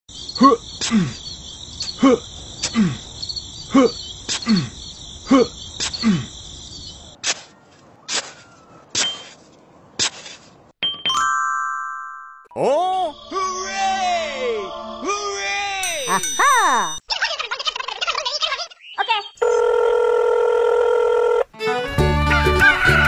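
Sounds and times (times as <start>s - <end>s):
birds chirping: 0.1s - 8.9s, 17.9s - 19.4s
sparkling chime ringing: 11.2s - 15.1s, 15.8s - 17.1s.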